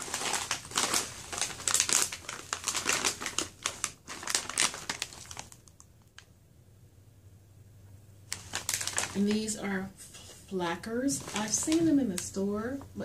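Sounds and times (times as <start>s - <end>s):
plastic pouch crinkling: 0.0s - 6.3s, 8.3s - 9.6s, 11.2s - 12.4s.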